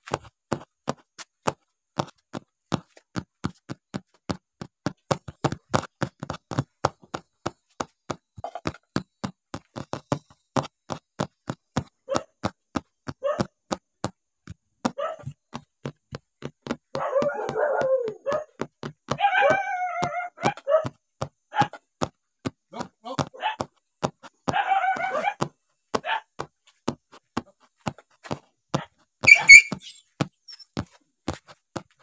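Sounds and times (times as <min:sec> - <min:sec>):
dog wavering high call: 0:17.0 - 0:18.4, 0:19.2 - 0:20.5, 0:24.6 - 0:25.4, 0:29.3 - 0:30.0
dog rough vocalisation: 0:17.0 - 0:18.5.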